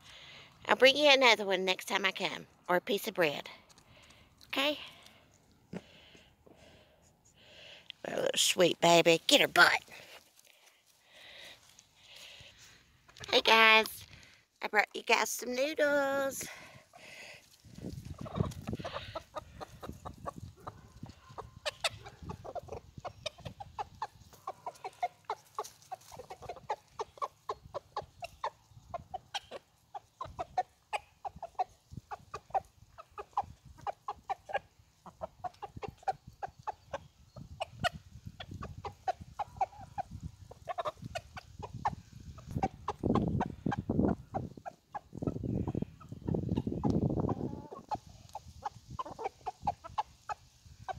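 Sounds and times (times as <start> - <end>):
chickens clucking: 11.7 - 14.0, 16.3 - 50.9.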